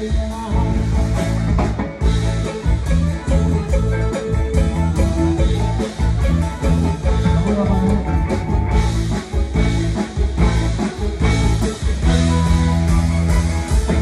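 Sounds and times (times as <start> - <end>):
drum kit beating: 0.0 - 14.0
live band playing: 0.0 - 14.0.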